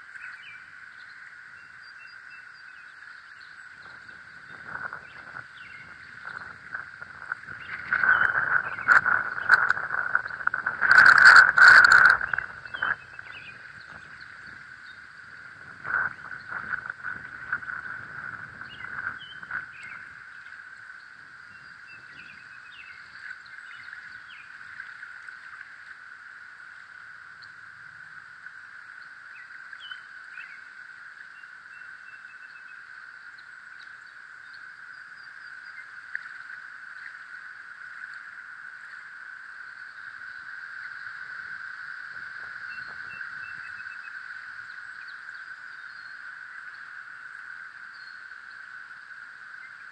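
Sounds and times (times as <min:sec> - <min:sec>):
bird chirps: 0:07.4 - 0:15.0.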